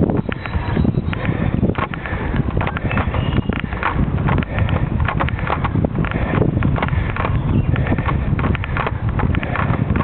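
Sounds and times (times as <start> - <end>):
wind buffeting microphone: 0.0 - 10.0
rattling clicks and knocks: 0.3 - 10.0.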